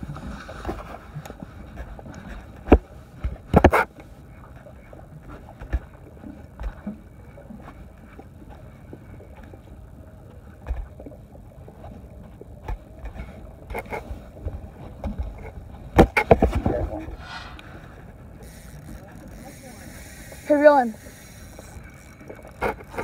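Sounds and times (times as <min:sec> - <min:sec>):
water around boat: 0:00.0 - 0:23.0
low wind: 0:11.8 - 0:23.0.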